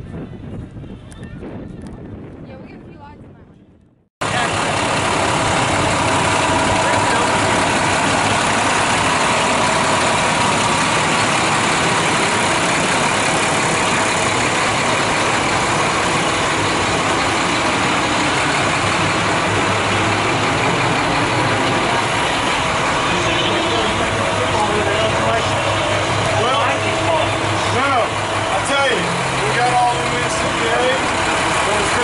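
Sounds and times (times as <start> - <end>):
diesel engine idling: 4.2 - 32.0.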